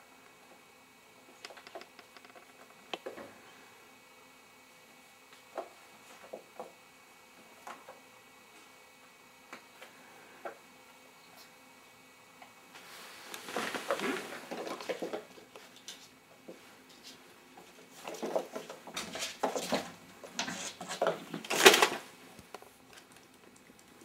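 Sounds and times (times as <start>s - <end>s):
kittens scuffling on rug and floor: 12.8s - 22.0s.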